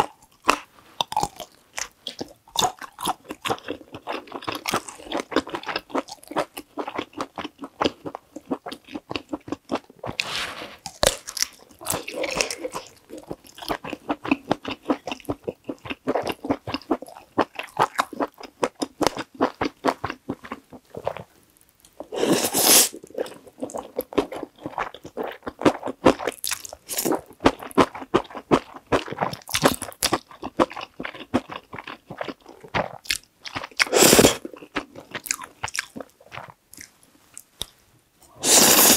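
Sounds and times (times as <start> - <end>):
noodle slurp: 22.1 - 23.0, 33.9 - 34.4, 38.4 - 38.9.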